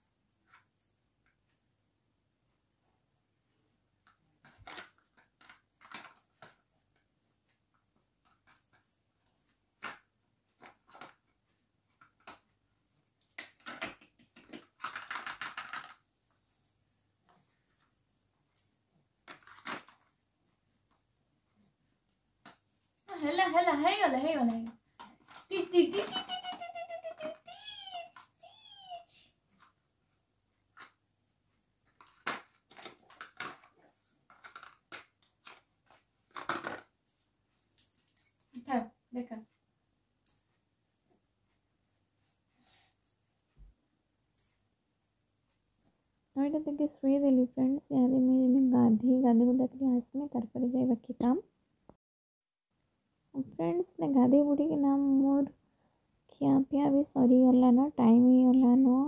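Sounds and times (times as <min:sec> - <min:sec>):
small objects clicking and clattering: 0:04.0 - 0:06.6, 0:13.2 - 0:16.1, 0:18.6 - 0:20.2, 0:31.8 - 0:36.9.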